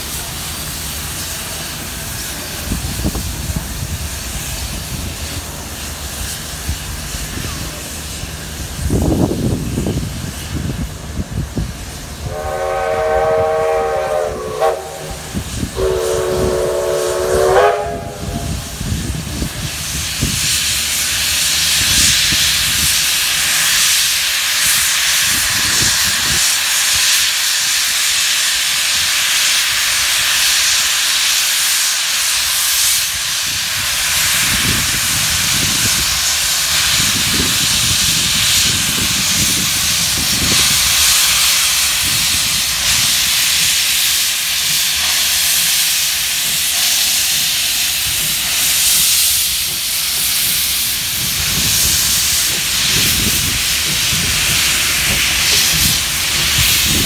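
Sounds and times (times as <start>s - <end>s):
steam hissing from drain cocks: 11.7s - 57.0s
steam locomotive whistle: 12.2s - 18.7s.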